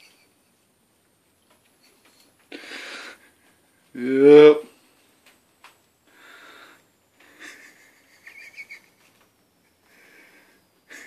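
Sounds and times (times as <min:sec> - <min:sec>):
person breathing and sniffing: 0:02.5 - 0:03.4.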